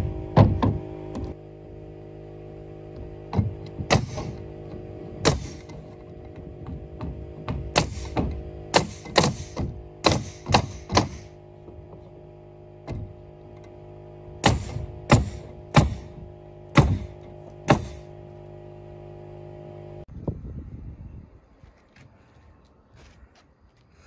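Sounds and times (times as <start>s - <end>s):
nailer firing: 0.0s - 1.4s, 3.0s - 12.2s, 12.8s - 13.8s, 14.4s - 18.2s
steady hum: 0.0s - 20.1s.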